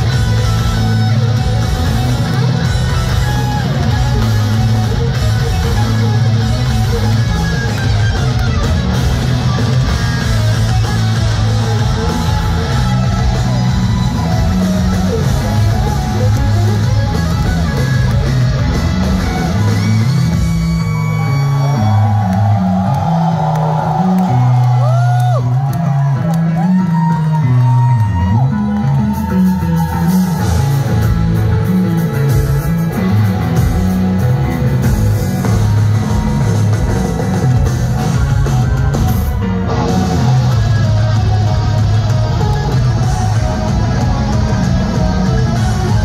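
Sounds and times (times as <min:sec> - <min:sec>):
driving drum kit: 0:00.0 - 0:27.4, 0:28.3 - 0:46.0
bass guitar: 0:00.0 - 0:46.0
distorted electric guitars: 0:00.0 - 0:46.0.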